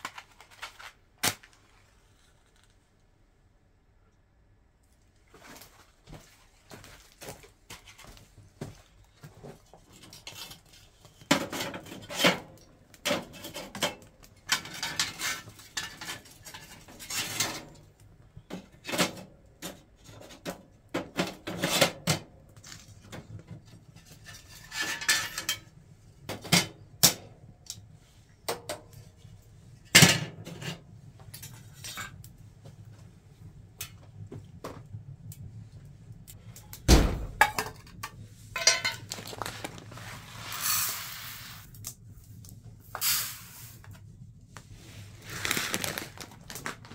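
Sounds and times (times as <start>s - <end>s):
metal stove lids clanking: 11.3s - 17.8s, 24.1s - 25.7s, 37.1s - 39.2s.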